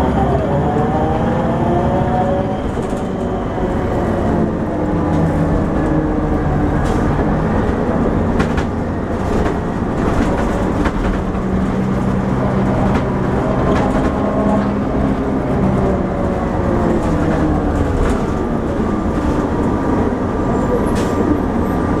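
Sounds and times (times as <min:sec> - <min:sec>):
bus engine running: 0:00.0 - 0:22.0
road noise: 0:00.0 - 0:22.0
interior rattles and clicks: 0:06.8 - 0:20.0.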